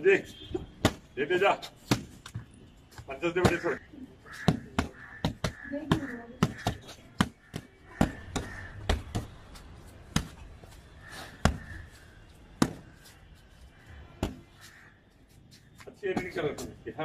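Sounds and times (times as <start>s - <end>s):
punches thudding on punching bag: 0.8s - 1.1s.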